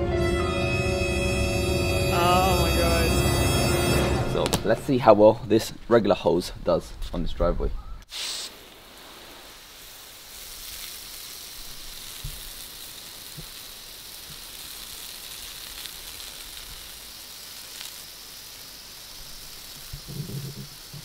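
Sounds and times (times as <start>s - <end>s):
hose water spraying on pavement: 8.1s - 21.0s.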